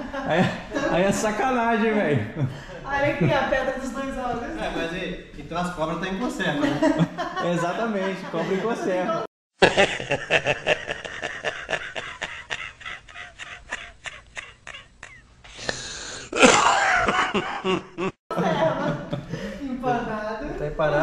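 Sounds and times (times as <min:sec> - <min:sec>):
elderly man laughing hard: 0:09.6 - 0:15.2, 0:16.3 - 0:18.8.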